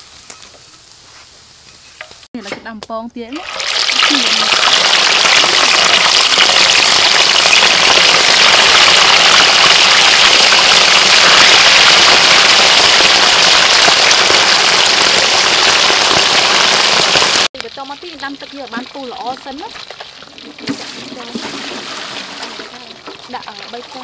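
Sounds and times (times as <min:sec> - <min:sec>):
fish deep-frying in hot oil: 0:03.4 - 0:24.0.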